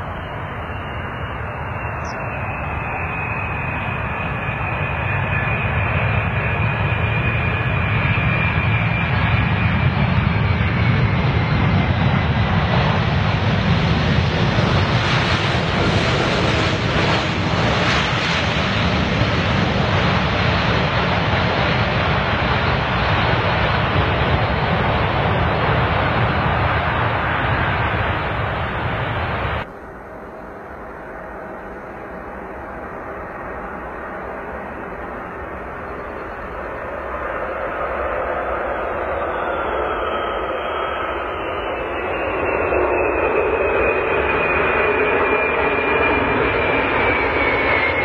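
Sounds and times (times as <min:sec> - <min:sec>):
jet engines whining: 0:00.0 - 0:48.0.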